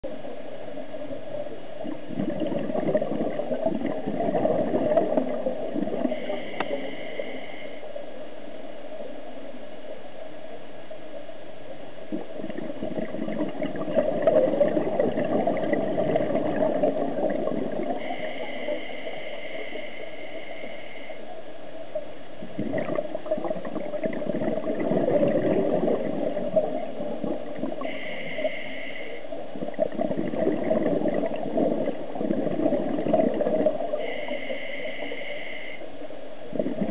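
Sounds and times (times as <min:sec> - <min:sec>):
bubbling underwater exhalations: 0:01.8 - 0:07.0, 0:12.1 - 0:18.6, 0:22.4 - 0:28.5, 0:29.5 - 0:34.2, 0:36.5 - 0:36.9.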